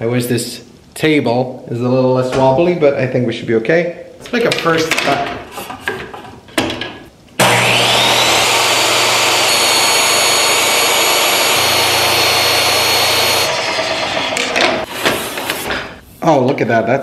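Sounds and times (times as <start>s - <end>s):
table saw motor whine: 7.4s - 14.8s
table saw cutting wood: 7.4s - 15.1s.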